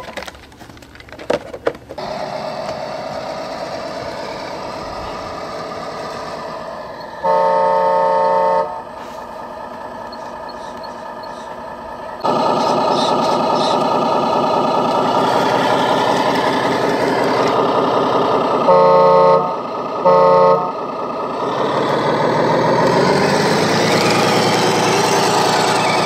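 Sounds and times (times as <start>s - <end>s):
simulated engine idling: 2.0s - 26.0s
horn blast: 7.2s - 9.0s, 18.6s - 20.8s.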